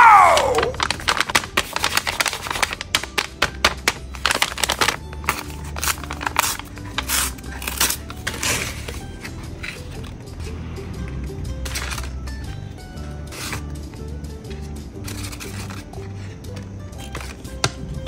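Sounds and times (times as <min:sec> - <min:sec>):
paper bag crinkling: 0:00.0 - 0:10.2, 0:15.0 - 0:16.4.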